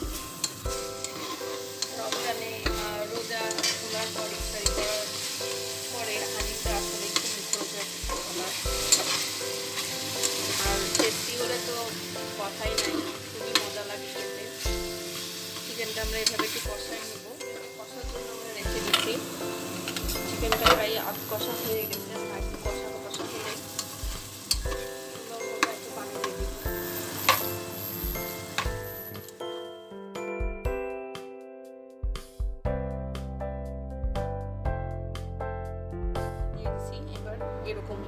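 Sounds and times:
chicken sizzling in oil: 0:00.0 - 0:29.5
spatula scraping a pot: 0:00.4 - 0:05.1, 0:07.1 - 0:11.6, 0:12.5 - 0:13.8, 0:21.6 - 0:25.0.

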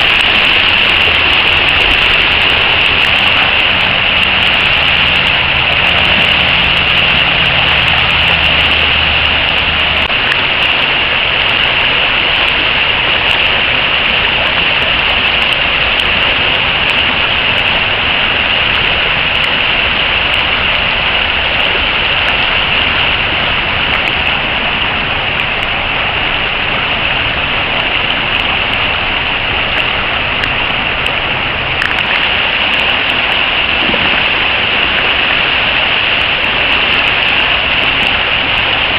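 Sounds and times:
river rapids rushing over rocks: 0:00.0 - 0:38.9.

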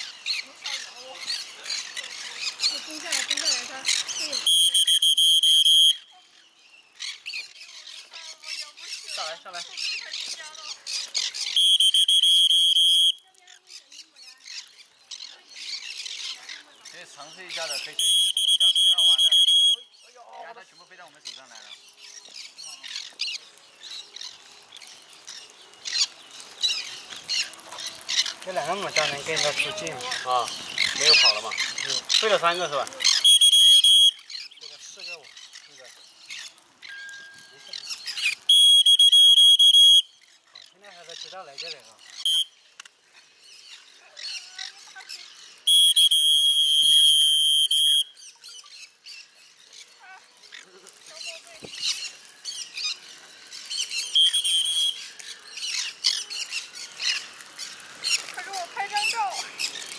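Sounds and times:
birds chirping and squawking: 0:00.0 - 0:05.0, 0:05.8 - 0:12.2, 0:13.2 - 0:45.9, 0:48.2 - 0:59.9
parrots giving harsh high calls: 0:33.0 - 0:34.5.

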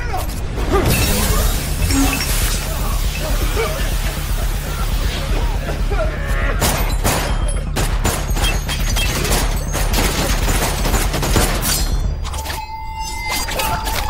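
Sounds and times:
steady low rumble: 0:00.2 - 0:08.2.

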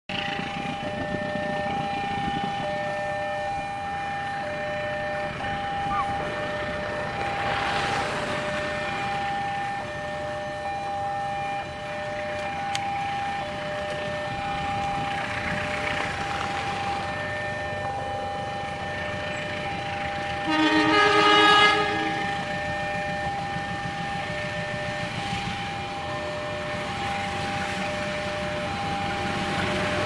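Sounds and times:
level crossing alarm two-tone: 0:00.5 - 0:16.0.

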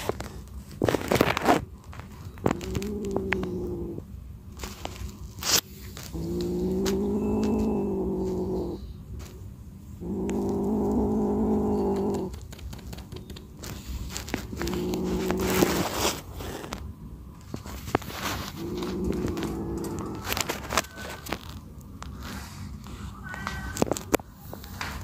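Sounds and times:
kitten growling: 0:02.4 - 0:04.2, 0:06.0 - 0:09.0, 0:09.9 - 0:12.6, 0:14.1 - 0:16.8, 0:18.0 - 0:20.7.

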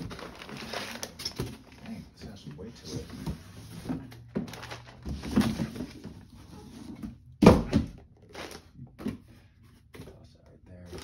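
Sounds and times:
cardboard and paper rustling: 0:00.0 - 0:07.2.

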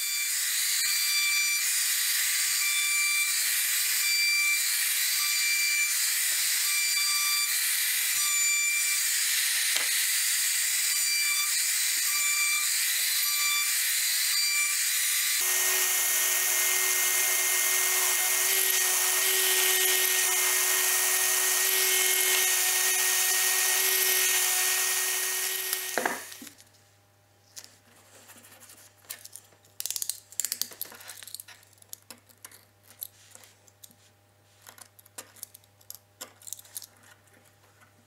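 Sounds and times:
router whining cutting wood: 0:00.0 - 0:26.5
orbital sander humming: 0:15.4 - 0:26.4.

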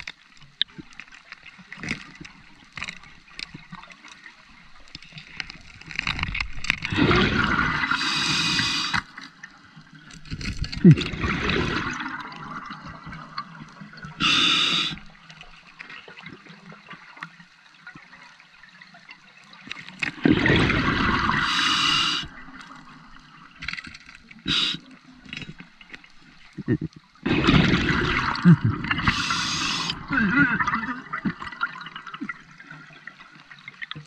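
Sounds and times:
exhaled bubbles gushing: 0:06.8 - 0:09.2, 0:10.5 - 0:15.2, 0:20.1 - 0:23.6, 0:26.4 - 0:34.0
regulator inhalation hiss: 0:07.9 - 0:09.0, 0:14.2 - 0:15.0, 0:21.4 - 0:22.4, 0:24.5 - 0:24.9, 0:29.1 - 0:30.0.

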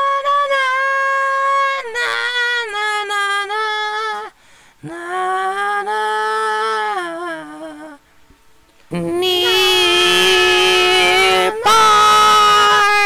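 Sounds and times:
high voice singing: 0:08.9 - 0:13.0.

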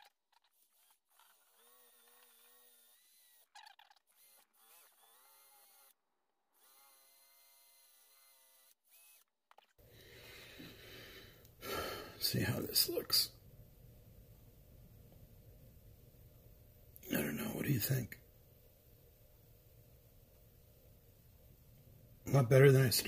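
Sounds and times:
drill with wire brush on blade: 0:00.0 - 0:06.0, 0:06.6 - 0:09.7
low steady hum: 0:09.8 - 0:23.0.

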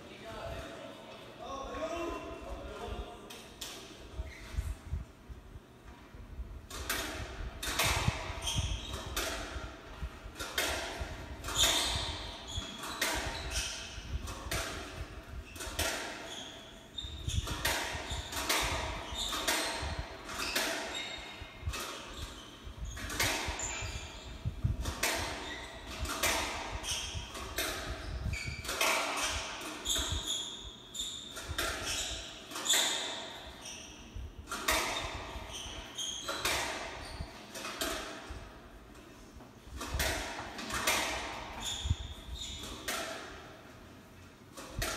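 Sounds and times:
squash ball hits: 0:06.7 - 0:16.2, 0:39.8 - 0:42.0
shoes squeaking on hardwood: 0:25.4 - 0:25.9, 0:28.1 - 0:34.0.

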